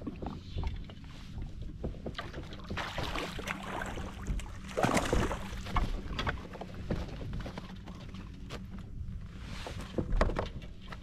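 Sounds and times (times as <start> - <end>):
water splashing against kayak: 0.0 - 8.5
knocks and rattles on hull: 0.0 - 11.0.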